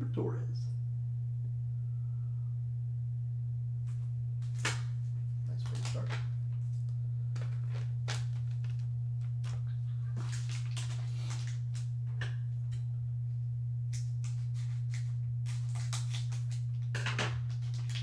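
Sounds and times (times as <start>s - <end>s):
steady low hum: 0.0s - 18.0s
cards and packaging rustling: 3.9s - 12.2s, 14.0s - 18.0s.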